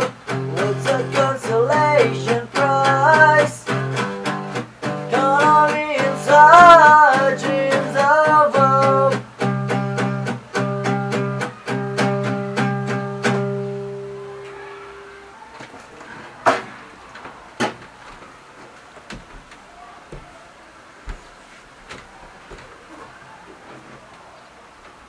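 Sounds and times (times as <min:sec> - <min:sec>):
acoustic guitar strumming: 0:00.0 - 0:15.4.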